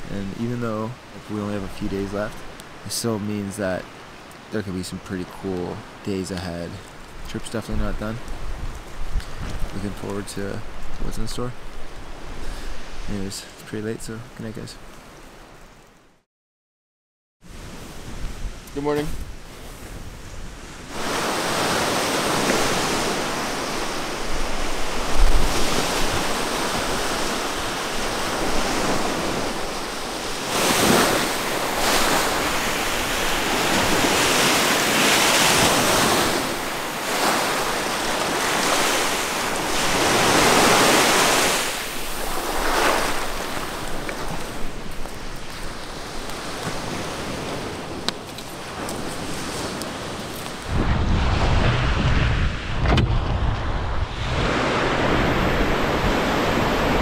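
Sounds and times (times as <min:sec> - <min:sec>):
wind on microphone: 0:07.8 - 0:09.9, 0:17.5 - 0:57.0
waves breaking on beach: 0:17.5 - 0:57.0.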